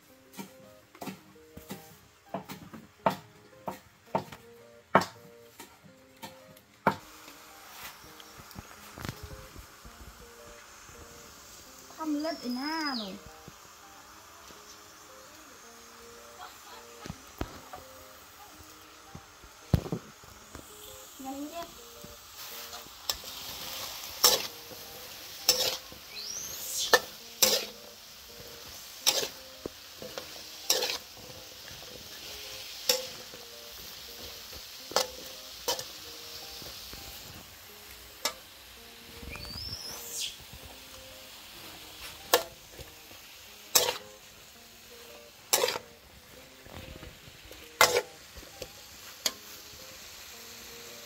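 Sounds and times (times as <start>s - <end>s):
vegetables sizzling in a wok: 0.0s - 51.0s
metal spatula clanking and scraping: 22.6s - 26.0s, 26.8s - 33.4s, 34.9s - 36.0s, 43.7s - 44.2s, 45.5s - 46.0s, 47.6s - 49.4s.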